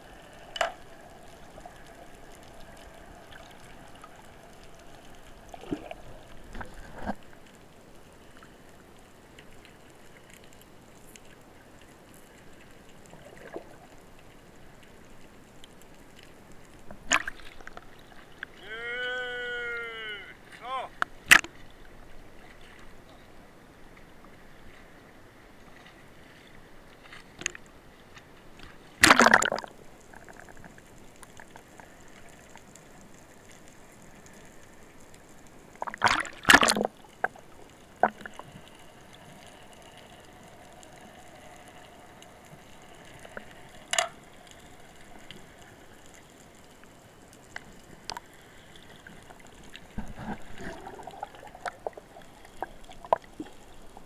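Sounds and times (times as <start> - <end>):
sea water sloshing: 0.0 - 18.7, 19.4 - 54.0
loud water splashes: 29.0 - 29.7, 35.9 - 36.9.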